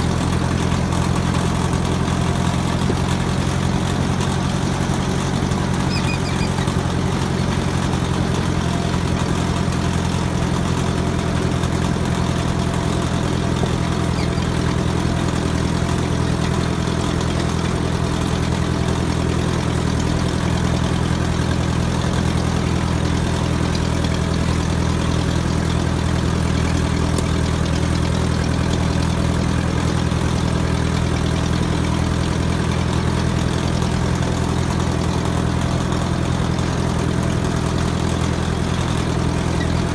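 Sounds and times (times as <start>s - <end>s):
tractor engine droning: 0.0s - 39.9s.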